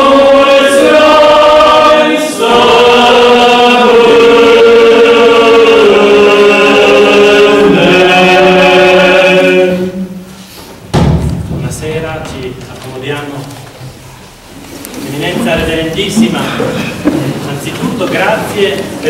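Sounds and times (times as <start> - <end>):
group singing a hymn: 0.0 - 10.5.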